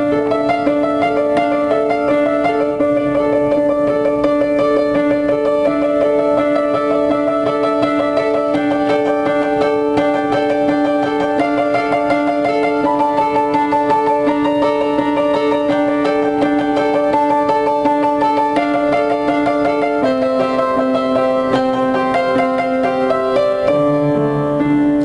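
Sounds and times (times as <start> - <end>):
solo piano piece: 0.0 - 25.0.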